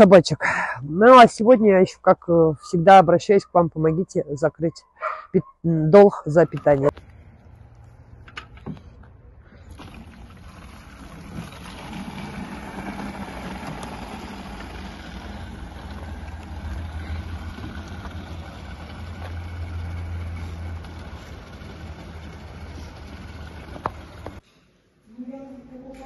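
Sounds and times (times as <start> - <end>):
water gushing into plastic jerrycans: 9.6 - 24.4.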